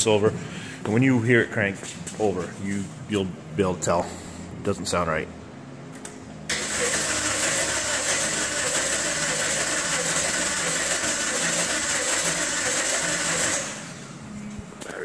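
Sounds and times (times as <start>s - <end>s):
engine cranking by starter: 6.5s - 14.1s.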